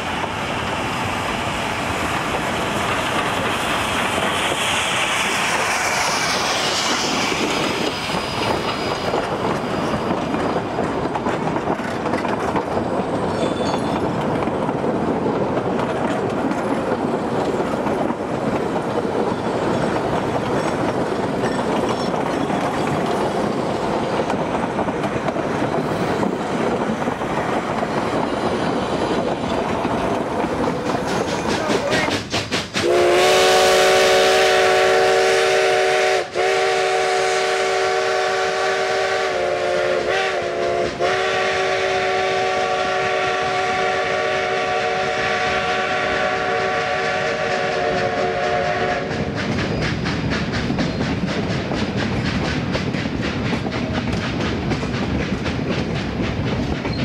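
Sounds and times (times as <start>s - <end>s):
freight cars rumbling on rails: 0.0s - 57.0s
steam locomotive chime whistle: 13.3s - 14.0s, 32.8s - 49.8s.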